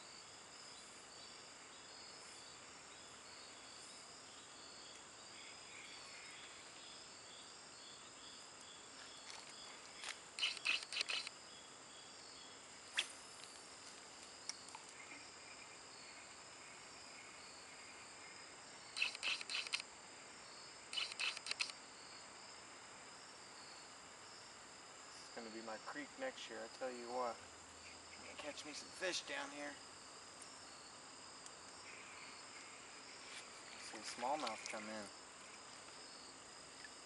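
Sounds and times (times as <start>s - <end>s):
crickets and insects chirping: 0.0s - 37.0s
fishing reel clicking: 10.4s - 11.3s, 19.0s - 19.8s, 21.0s - 21.7s
sharp click: 10.4s - 11.3s, 19.0s - 19.8s, 21.0s - 21.8s.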